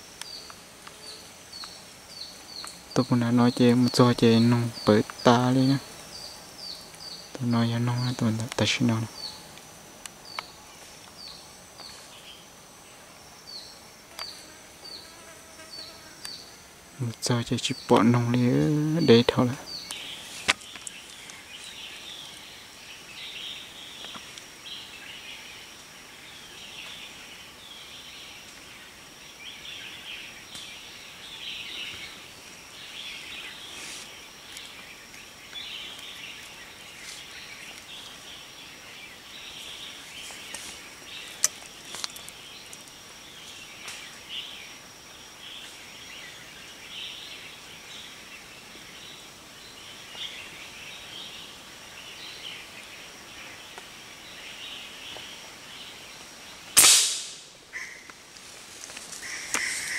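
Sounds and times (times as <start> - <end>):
birds chirping and calling: 0.0 - 12.5, 15.8 - 56.6, 59.0 - 59.9
sharp click: 56.8 - 57.4.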